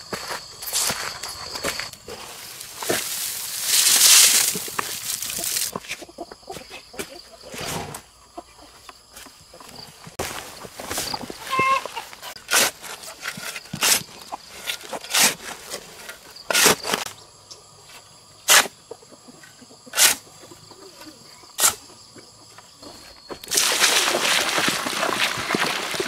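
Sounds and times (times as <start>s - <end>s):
insect chirring: 0.0s - 5.7s.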